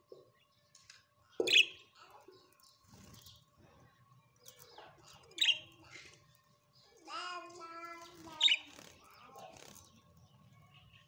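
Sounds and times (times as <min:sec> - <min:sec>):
budgerigars chirping: 0:01.4 - 0:01.8, 0:05.4 - 0:05.7.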